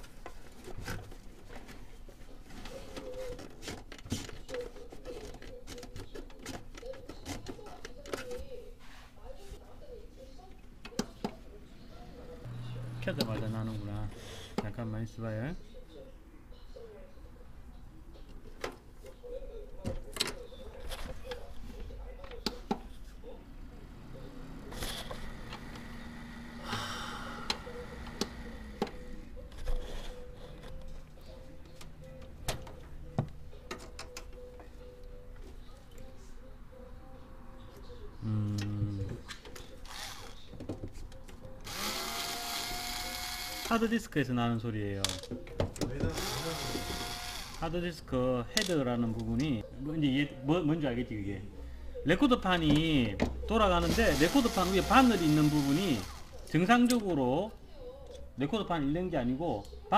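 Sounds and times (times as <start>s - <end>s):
computer humming: 23.4s - 29.4s.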